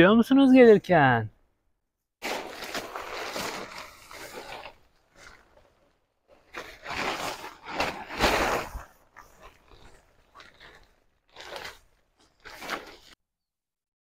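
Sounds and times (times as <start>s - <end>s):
crinkling and rustling: 2.2s - 13.2s.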